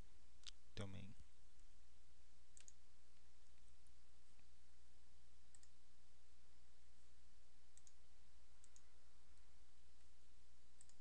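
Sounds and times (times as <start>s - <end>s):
low electrical hum: 0.0s - 11.0s
computer mouse clicks: 2.5s - 2.8s, 5.5s - 5.8s, 7.7s - 8.0s, 8.6s - 8.9s, 10.8s - 11.0s.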